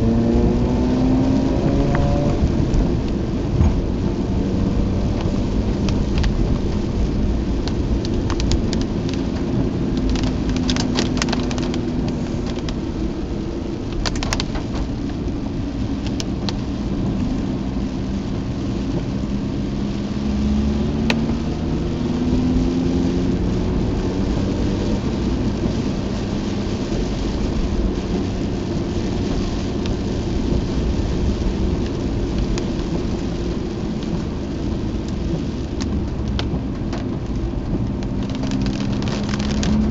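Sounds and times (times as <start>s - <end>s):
engine hum: 0.0s - 39.9s
rain hiss: 0.0s - 39.9s
tyre noise on wet road: 0.0s - 39.9s.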